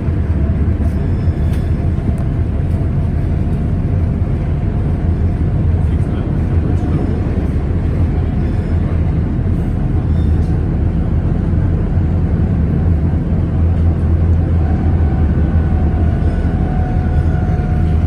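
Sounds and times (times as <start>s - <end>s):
tram rumbling along track: 0.0s - 18.0s.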